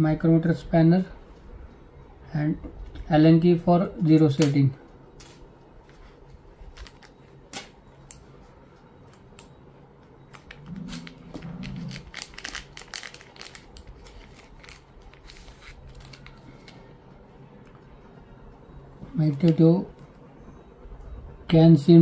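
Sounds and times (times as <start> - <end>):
short low hum: 4.8 - 12.7
plastic bag crinkling: 10.9 - 16.8.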